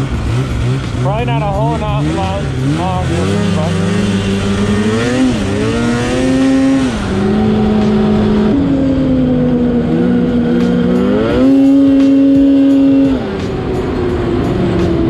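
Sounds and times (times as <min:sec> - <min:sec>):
snowmobile engine revving: 0:00.0 - 0:13.8.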